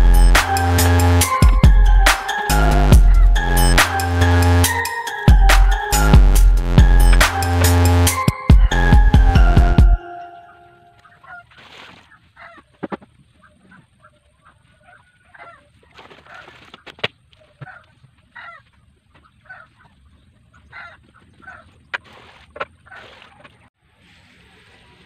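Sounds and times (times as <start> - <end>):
farm fowl calling: 10.0 - 16.6, 17.4 - 21.8.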